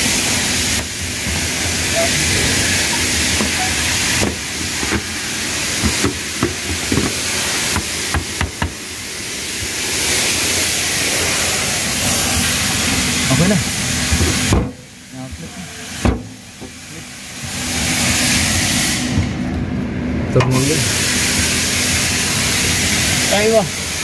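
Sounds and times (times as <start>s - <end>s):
steady hiss: 0.0s - 19.2s.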